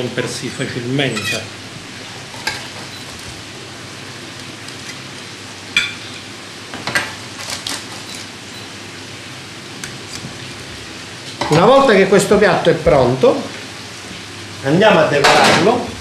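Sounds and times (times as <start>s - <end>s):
steady hiss: 8.2s - 16.0s.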